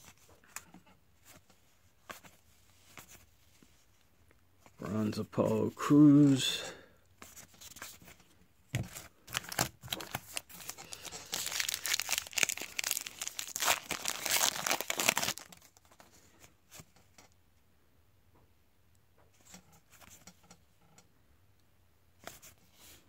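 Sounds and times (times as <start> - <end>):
plastic foil wrapper crinkling: 9.1 - 16.0.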